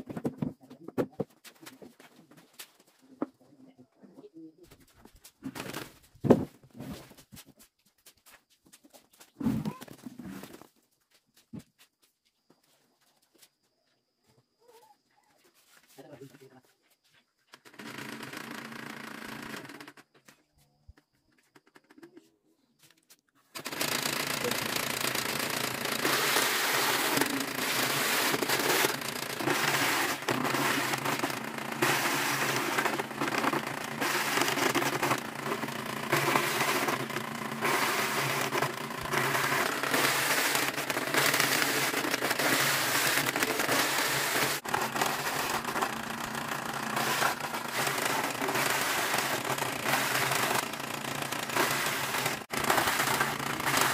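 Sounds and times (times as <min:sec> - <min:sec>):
shredder motor running: 0:23.6 - 0:53.9
roots shredding with crackling rattle: 0:25.7 - 0:53.9.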